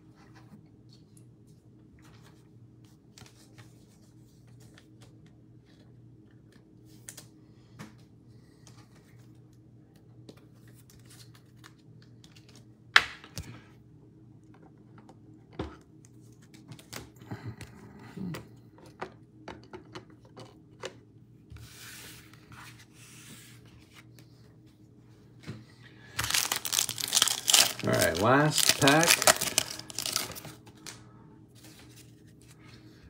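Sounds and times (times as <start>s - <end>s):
faint steady hum: 0.0s - 33.0s
card sleeves rustling: 26.1s - 30.9s.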